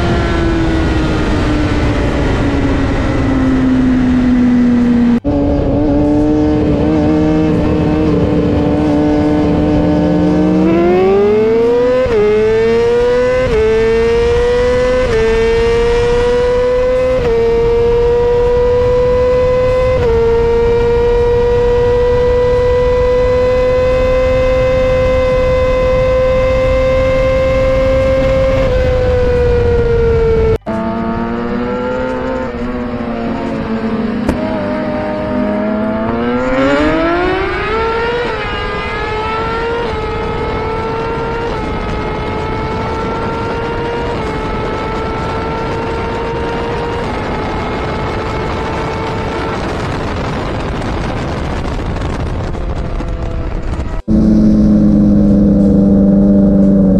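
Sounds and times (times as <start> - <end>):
motorcycle engine revving through gears: 0.0 - 56.9.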